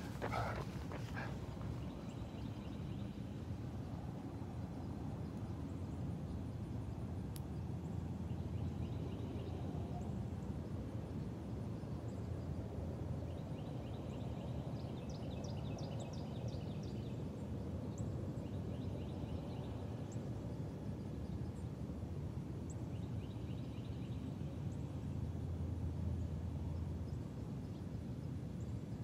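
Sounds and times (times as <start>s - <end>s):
small birds chirping: 0.0s - 3.1s.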